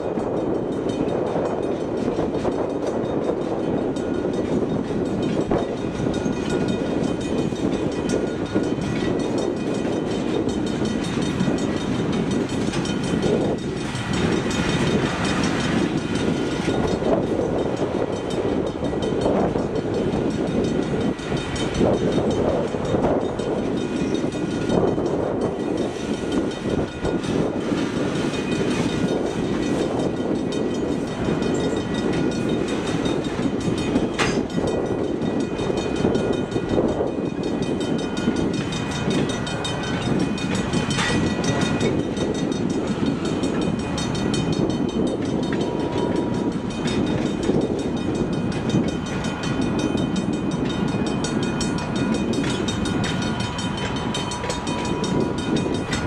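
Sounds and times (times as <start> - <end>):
train wheels rumbling on rails: 0.0 - 56.0
sharp metal clanks: 33.8 - 34.7.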